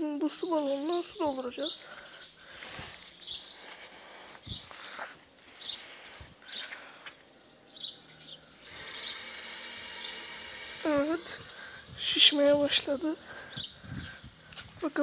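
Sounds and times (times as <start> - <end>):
birds chirping: 0.0 - 15.0
footsteps on concrete: 2.0 - 7.3
water rushing through hose: 8.7 - 12.9.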